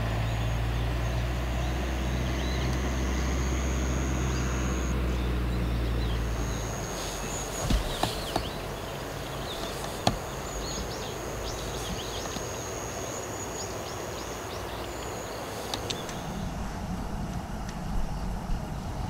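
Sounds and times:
high-pitched insect trill: 0.2s - 16.5s
sharp clicks: 7.2s - 8.7s, 15.7s - 16.2s.

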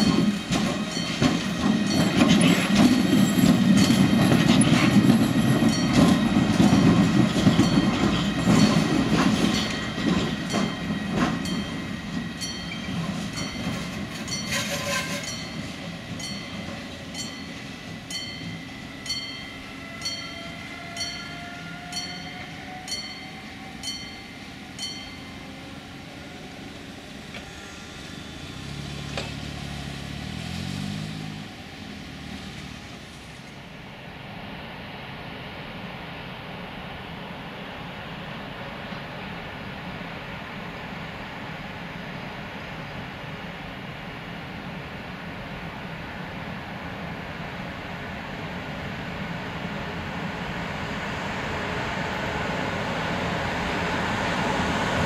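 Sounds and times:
wheels clacking over rail joints: 0.0s - 19.4s, 28.9s - 31.1s
wheels rumbling on rail: 0.0s - 55.0s.

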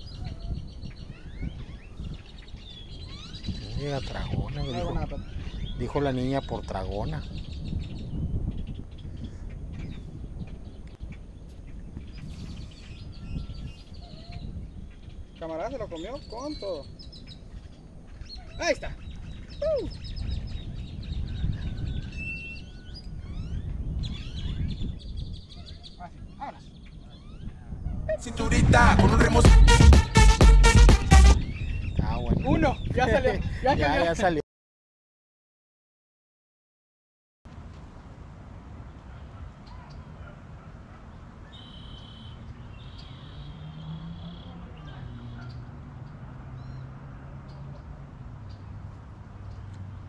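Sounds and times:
birds singing and calling: 0.0s - 29.4s, 31.3s - 34.4s, 38.9s - 50.0s
wind rumbling on microphone: 0.0s - 29.8s, 31.1s - 34.4s
low rumble: 28.0s - 31.6s
high steady call: 28.2s - 31.4s.

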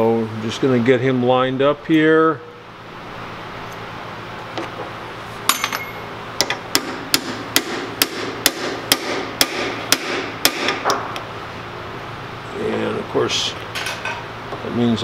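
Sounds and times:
metal ringing: 5.5s - 6.1s.

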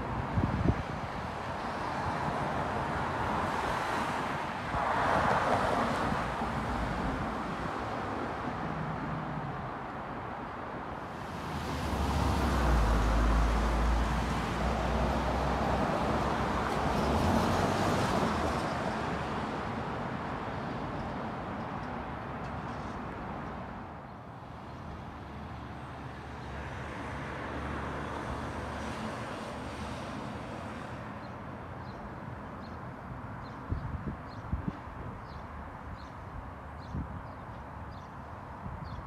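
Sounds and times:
steady traffic background: 0.0s - 39.0s
passing vehicle rumble: 11.4s - 18.5s.

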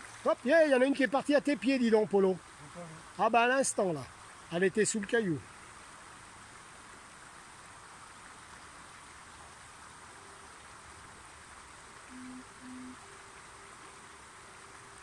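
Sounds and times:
stream flowing over stones: 0.0s - 15.0s
short low tones: 12.1s - 13.0s.

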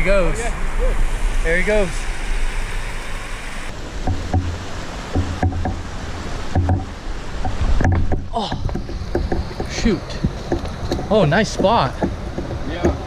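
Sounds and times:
creek water running over rocks: 0.0s - 13.0s
dull handling thumps: 4.0s - 13.0s.

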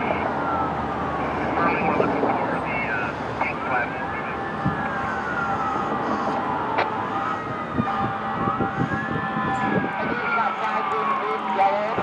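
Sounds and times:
fire siren wailing: 0.0s - 12.0s
traffic noise: 0.0s - 12.0s.

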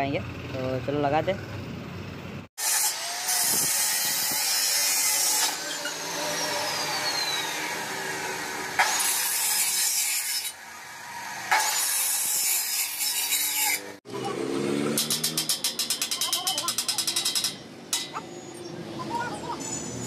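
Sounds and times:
abrasive saw cutting steel tube: 2.6s - 14.2s, 14.8s - 18.6s
saw motor whine: 5.4s - 8.8s.

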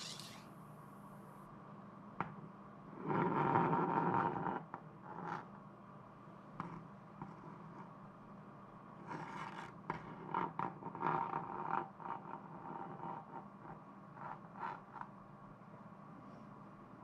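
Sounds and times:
ruler scraping on desktop: 0.0s - 0.4s.

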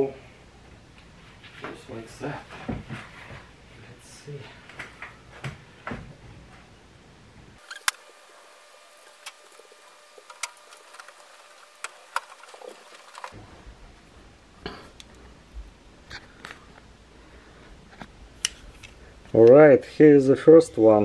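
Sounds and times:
air filter scraping and rustling: 7.6s - 13.6s.

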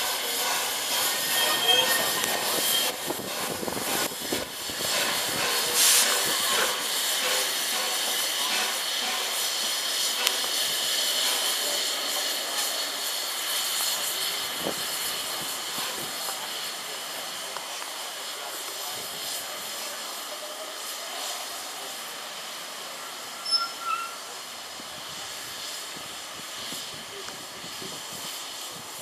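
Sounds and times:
steam hissing: 0.0s - 29.0s.

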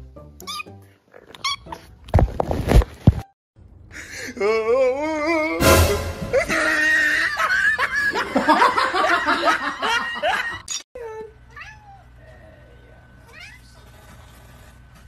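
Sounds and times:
people laughing together: 6.3s - 10.7s.

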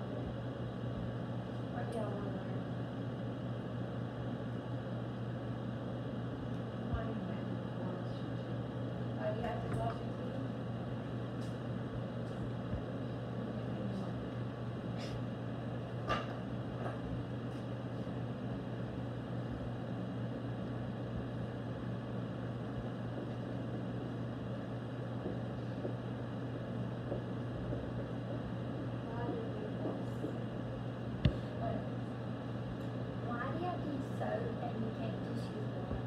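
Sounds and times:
room noise: 0.0s - 36.0s
steady low hum: 0.0s - 36.0s.

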